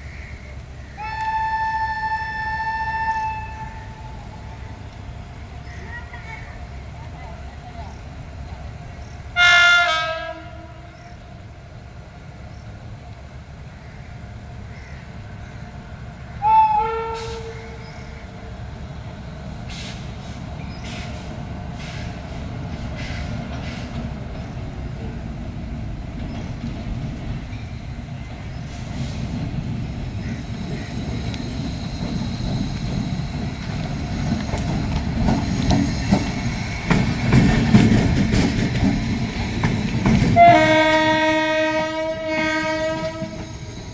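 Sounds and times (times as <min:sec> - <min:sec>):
train rumble approaching: 0:00.0 - 0:43.9
locomotive horn blasts: 0:09.4 - 0:10.9, 0:16.4 - 0:17.6, 0:40.4 - 0:43.4.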